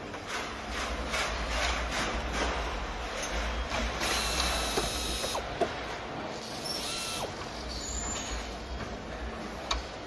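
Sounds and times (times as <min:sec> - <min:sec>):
assembly line mechanical clatter: 0:00.0 - 0:05.9
power screwdriver running: 0:04.0 - 0:05.4, 0:06.8 - 0:07.3.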